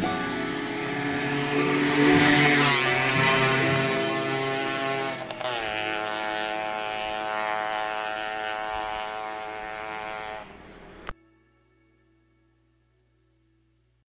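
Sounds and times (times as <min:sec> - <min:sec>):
motorcycle engine running: 0:00.0 - 0:11.1.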